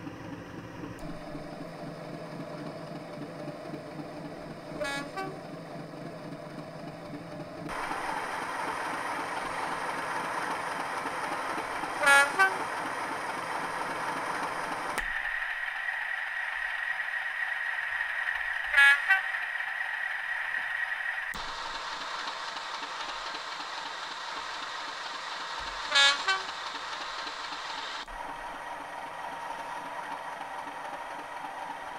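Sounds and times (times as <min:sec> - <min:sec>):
diesel locomotive engine running: 0:00.0 - 0:31.9
locomotive horn toots: 0:04.7 - 0:05.5, 0:11.8 - 0:12.9, 0:18.7 - 0:19.4, 0:25.8 - 0:26.7.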